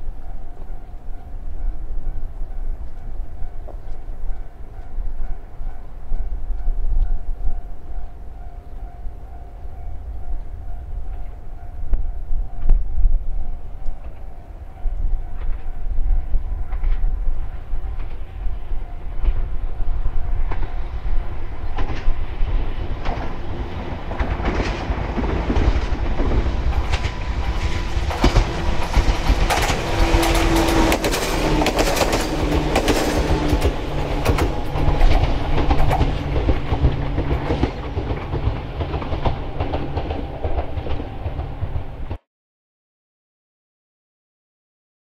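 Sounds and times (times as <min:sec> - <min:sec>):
train wheels clicking over rail joints: 0:15.4 - 0:42.2
train motor hum: 0:17.9 - 0:42.2.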